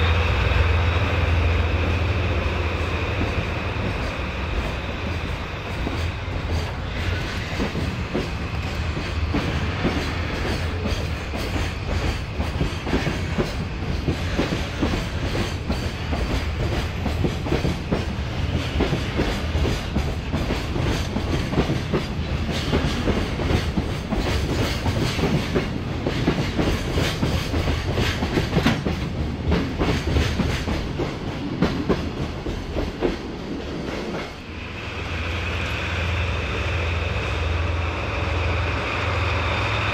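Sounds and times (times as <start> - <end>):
train wheels clattering over rail joints: 2.7 - 34.5.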